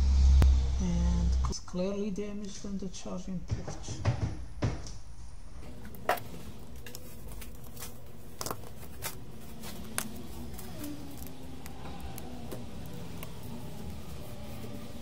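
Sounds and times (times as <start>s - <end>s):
low hum: 0.0s - 1.8s, 5.1s - 15.0s.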